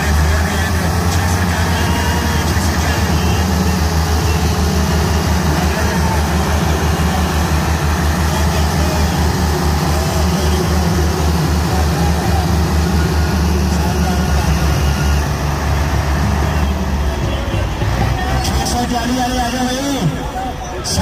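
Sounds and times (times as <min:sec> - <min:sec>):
tractor engines at full throttle: 0:00.0 - 0:21.0.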